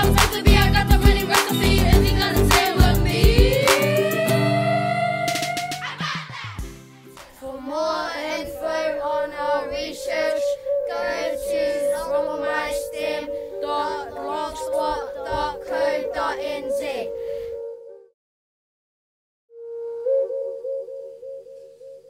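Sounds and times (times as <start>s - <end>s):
children singing together: 0.0s - 17.1s
music: 0.0s - 18.2s.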